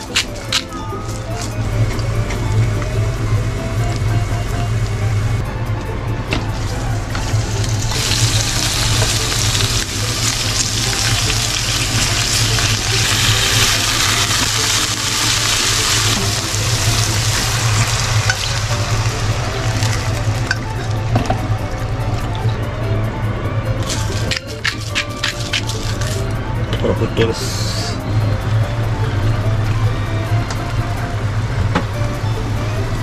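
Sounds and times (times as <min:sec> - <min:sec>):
food sizzling in oil: 0:06.6 - 0:21.0.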